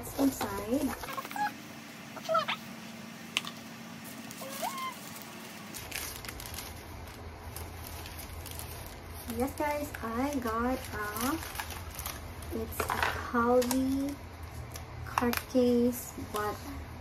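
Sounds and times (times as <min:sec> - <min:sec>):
paper wrapping rustling: 0:04.0 - 0:16.6.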